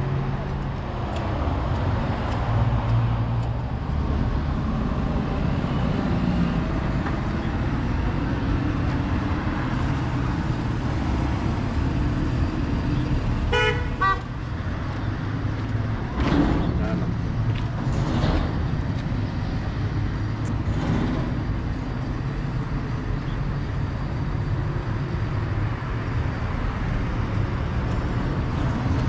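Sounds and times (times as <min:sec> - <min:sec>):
street traffic rumble: 0:00.0 - 0:29.0
car horn tooting: 0:13.5 - 0:14.3.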